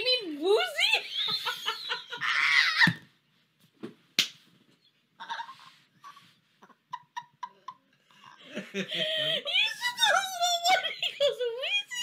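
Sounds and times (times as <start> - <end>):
people laughing hysterically: 1.0 - 2.9, 6.6 - 9.4.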